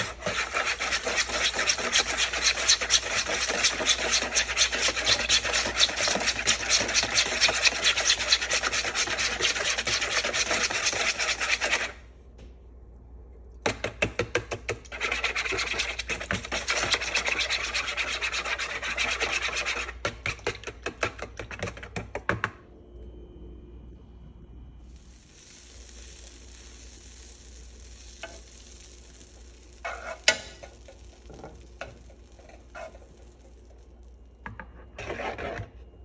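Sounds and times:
whisk scraping bowl: 0:00.0 - 0:12.0, 0:14.8 - 0:22.0, 0:29.8 - 0:30.8, 0:32.1 - 0:33.4, 0:35.0 - 0:35.8.

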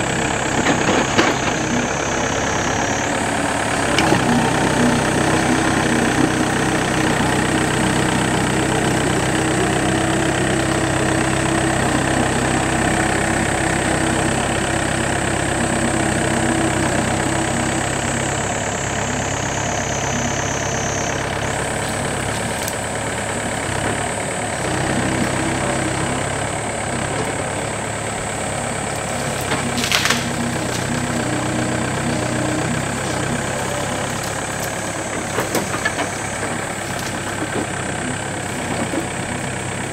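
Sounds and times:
high whine: 0:00.0 - 0:23.7
excavator diesel engine running: 0:00.0 - 0:39.9.

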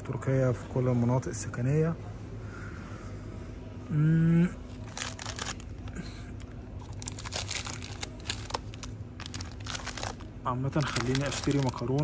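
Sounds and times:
steady low hum: 0:00.0 - 0:12.0
plastic packaging crinkling: 0:04.7 - 0:12.0.

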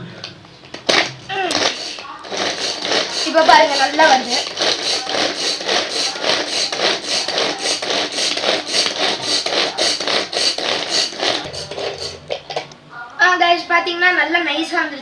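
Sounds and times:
pull-cord chopper whirring: 0:01.5 - 0:12.6.

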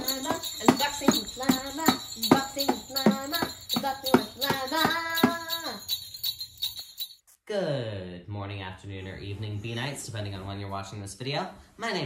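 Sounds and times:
upbeat music with sleigh bells: 0:00.0 - 0:07.4.

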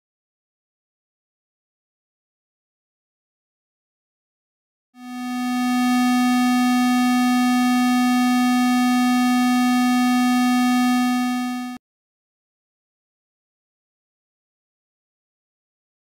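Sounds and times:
buzzy test tone: 0:05.0 - 0:11.8.

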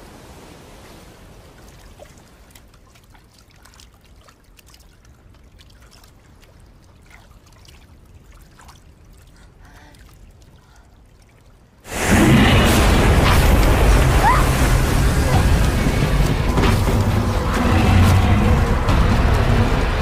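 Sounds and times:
water trickling and dripping: 0:00.0 - 0:12.1
low watery hiss: 0:00.0 - 0:20.0.

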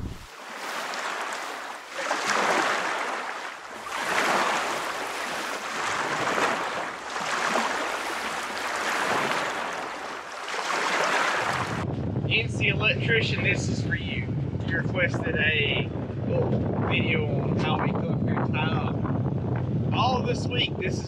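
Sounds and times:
small waves washing: 0:00.0 - 0:11.8.

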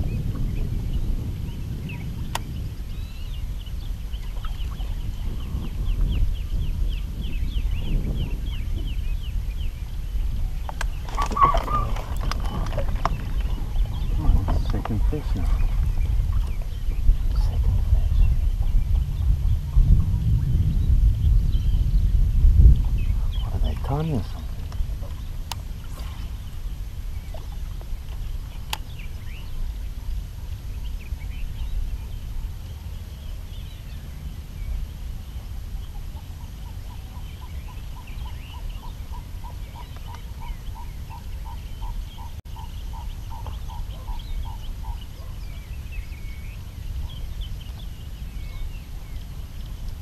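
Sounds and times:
small birds chirping: 0:00.0 - 0:50.0
wind rumble on microphone: 0:00.0 - 0:50.0
repeated animal call: 0:11.1 - 0:12.8.

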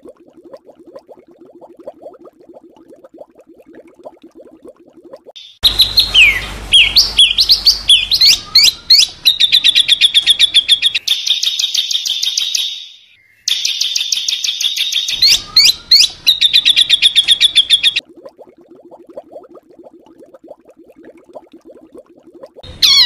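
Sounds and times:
songbird singing sharp notes: 0:05.4 - 0:18.0.

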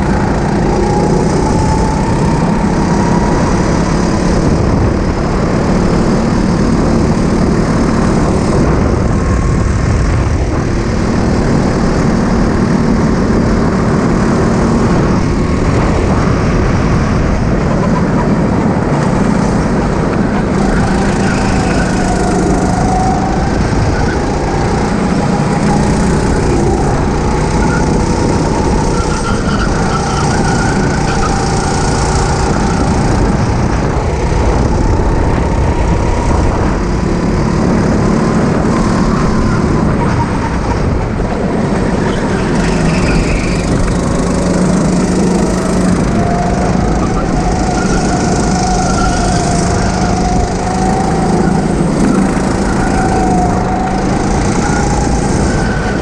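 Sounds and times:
go-kart engines revving: 0:00.0 - 0:56.0
loud dense rumble: 0:00.0 - 0:56.0.

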